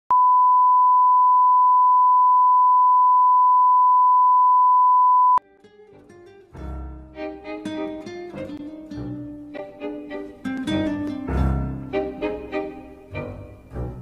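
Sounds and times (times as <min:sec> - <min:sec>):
quiet instrumental music: 0:05.4 - 0:14.0.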